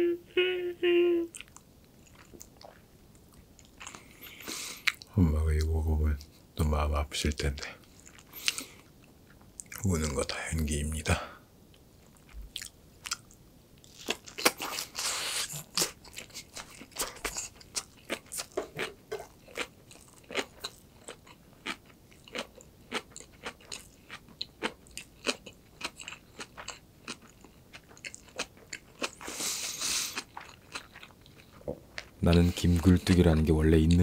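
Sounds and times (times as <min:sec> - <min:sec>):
crisp chewing crunches: 0:12.0 - 0:34.0.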